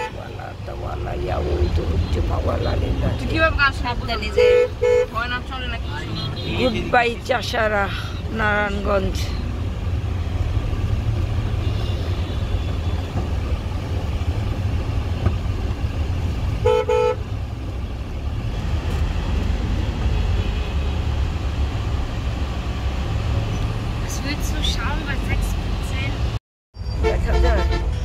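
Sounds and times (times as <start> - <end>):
car engine and road noise: 0.0 - 28.0
vehicle horn toot: 4.3 - 5.3, 16.6 - 17.2, 27.0 - 28.0.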